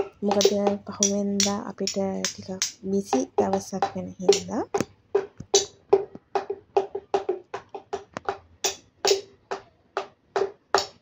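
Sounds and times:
hand knocking on coconut: 0:02.2 - 0:08.5.

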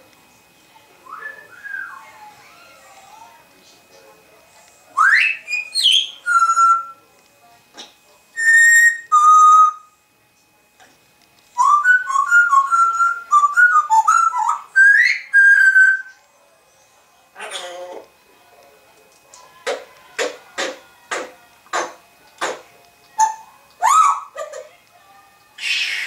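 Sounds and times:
parrot whistling: 0:01.1 - 0:02.1, 0:05.0 - 0:07.0, 0:08.4 - 0:09.9, 0:11.6 - 0:16.1, 0:23.2 - 0:24.7, 0:25.6 - 0:26.0.

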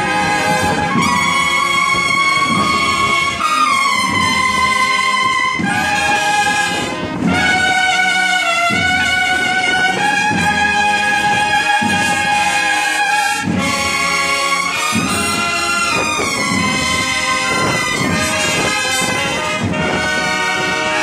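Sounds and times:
bugles playing march melody: 0:00.0 - 0:21.0
marching drum beats: 0:00.0 - 0:21.0.

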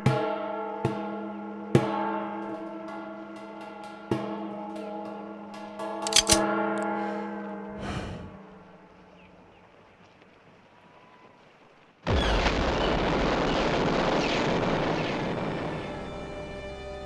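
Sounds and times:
loud blast with deep boom: 0:12.1 - 0:16.2.

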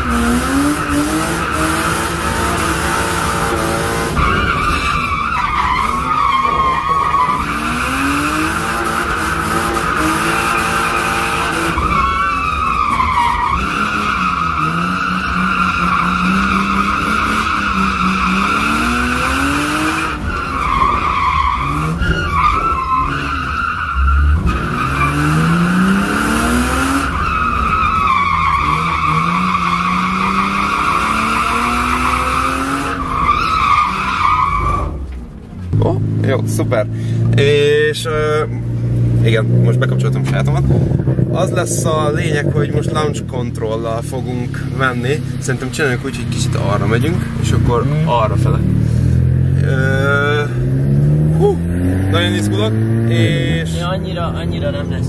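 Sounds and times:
car engine revving: 0:00.0 - 0:55.0
tyres squealing: 0:00.5 - 0:35.1.

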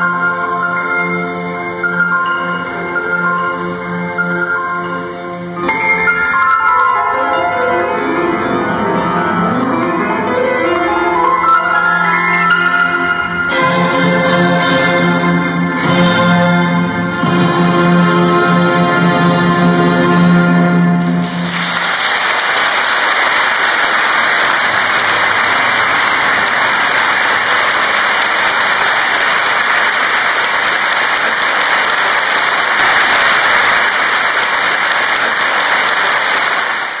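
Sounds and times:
audience applause: 0:21.0 - 0:37.0.

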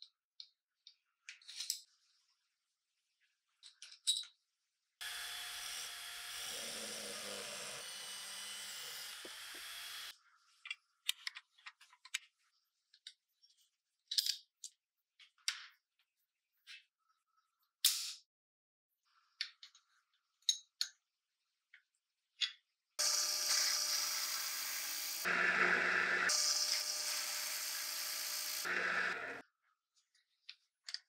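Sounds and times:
metal parts clicking and clinking: 0:03.6 - 0:04.4
handheld grinder grinding metal: 0:05.0 - 0:10.1, 0:23.0 - 0:29.4.

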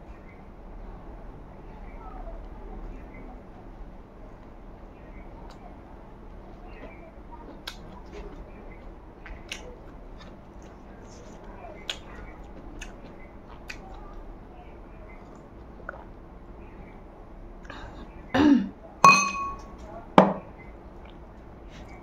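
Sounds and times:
wet eating clicks: 0:07.6 - 0:10.8, 0:11.4 - 0:14.2.

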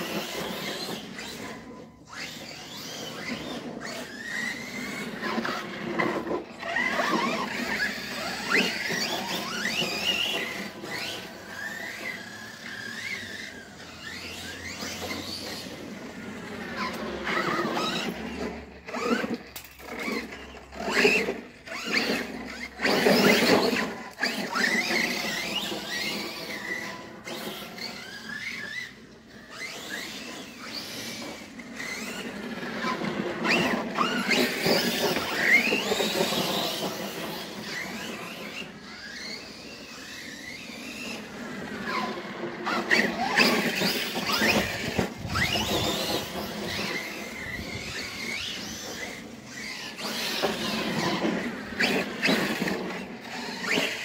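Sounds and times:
electric toy car motor whining: 0:00.0 - 0:54.0.

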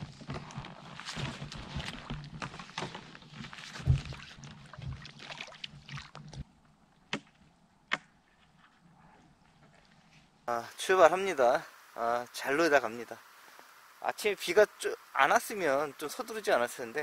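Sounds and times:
rustling and scraping of gear: 0:00.0 - 0:06.5, 0:08.2 - 0:10.4.

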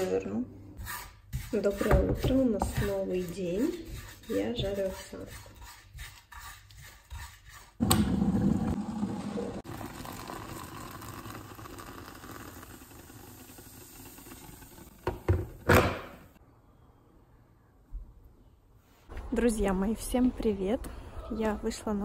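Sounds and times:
oatmeal sizzling in a pan: 0:09.6 - 0:15.0.

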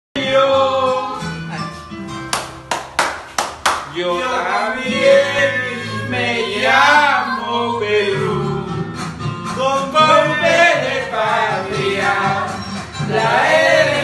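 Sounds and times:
man singing: 0:00.2 - 0:01.7, 0:03.9 - 0:12.6
guitar-backed music track: 0:00.2 - 0:06.6.

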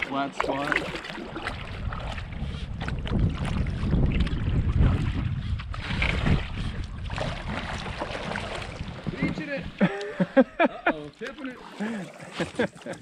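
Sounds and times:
wind rumbling on microphone: 0:00.0 - 0:09.8
water ticking against hull: 0:00.0 - 0:13.0.

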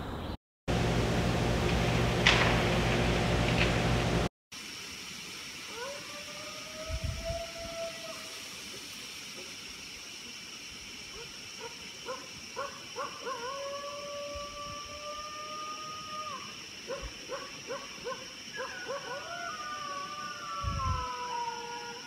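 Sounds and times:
steady high hiss: 0:03.6 - 0:22.0
dog howling and yipping: 0:05.7 - 0:08.3, 0:12.6 - 0:22.0.

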